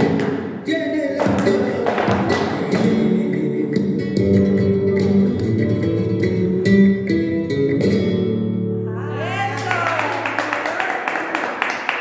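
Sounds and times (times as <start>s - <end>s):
flamenco guitar playing: 1.2s - 10.5s.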